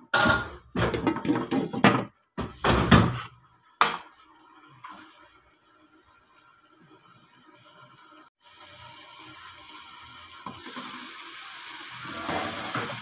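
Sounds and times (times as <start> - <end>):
cooking clatter in a wok: 0.0 - 4.2, 11.9 - 13.0
faint sizzle: 2.6 - 13.0.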